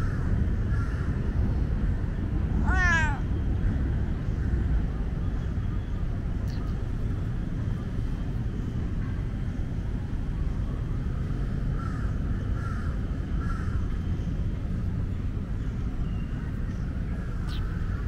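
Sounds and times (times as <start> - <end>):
low background rumble: 0.0 - 18.0
crow cawing: 2.6 - 3.2.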